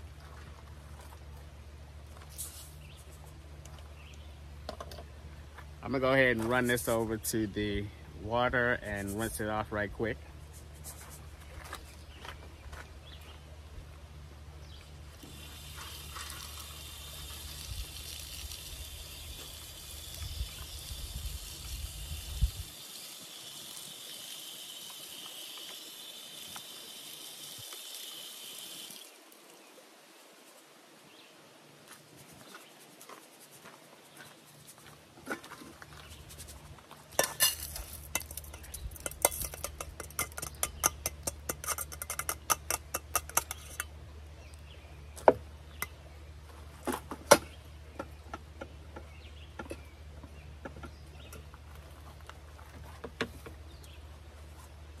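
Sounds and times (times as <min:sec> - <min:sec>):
water running from spigot: 0:15.2 - 0:29.2
metal strainer and pot clinking: 0:37.2 - 0:43.9.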